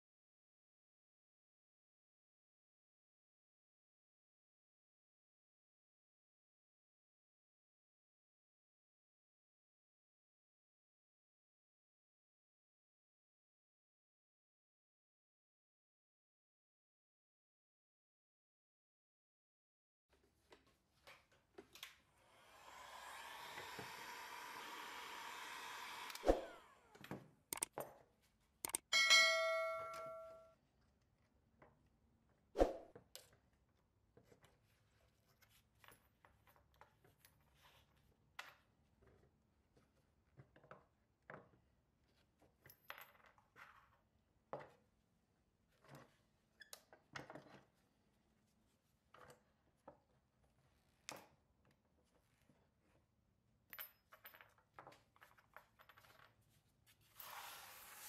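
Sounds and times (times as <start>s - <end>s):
metal piece dropping and ringing: 28.9s - 30.5s.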